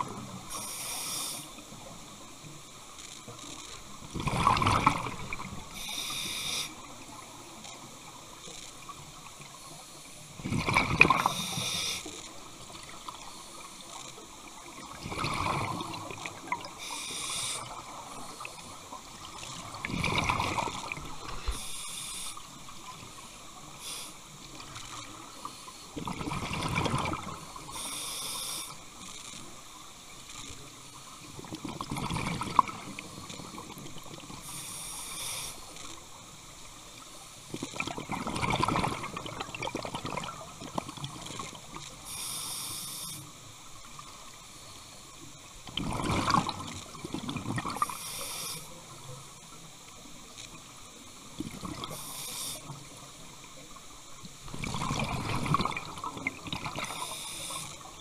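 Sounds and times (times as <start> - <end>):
regulator hiss: 0.2 - 1.9, 5.7 - 7.4, 11.2 - 12.3, 16.7 - 18.9, 21.4 - 22.6, 23.6 - 25.9, 27.4 - 28.8, 34.2 - 36.0, 42.0 - 43.6, 47.8 - 49.0, 51.9 - 53.3, 56.8 - 58.0
exhaled bubbles rushing underwater: 4.1 - 5.8, 10.4 - 11.6, 14.7 - 16.9, 17.6 - 21.6, 26.0 - 27.6, 31.4 - 34.4, 37.6 - 41.6, 45.7 - 47.9, 54.4 - 58.0.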